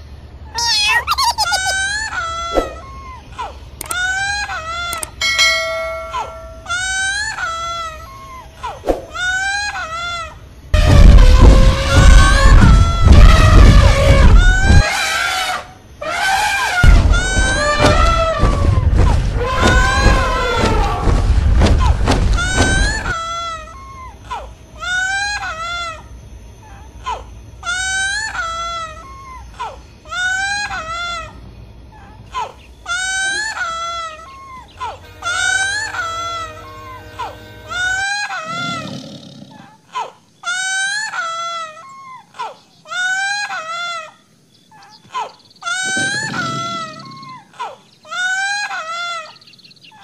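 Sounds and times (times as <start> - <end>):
child crying: 0.5 - 5.2.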